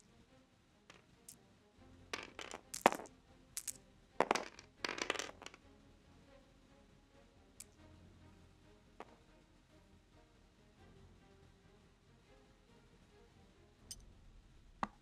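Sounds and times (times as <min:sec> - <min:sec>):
plastic dice clattering on mat: 0:00.9 - 0:01.4, 0:02.1 - 0:05.6.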